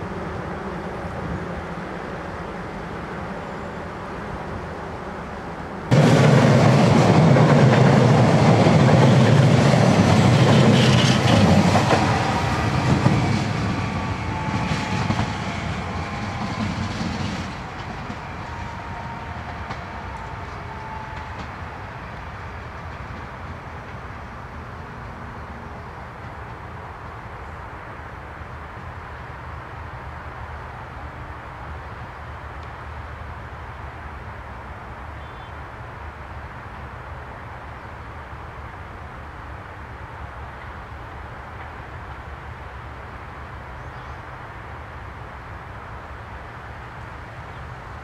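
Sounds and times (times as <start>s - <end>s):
train wheels rushing on rails: 1.2s - 29.0s.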